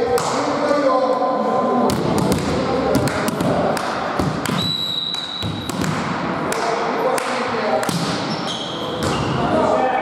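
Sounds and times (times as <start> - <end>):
volleyball bouncing thuds: 1.9 - 4.6, 5.4 - 6.1
referee's whistle: 4.5 - 5.7.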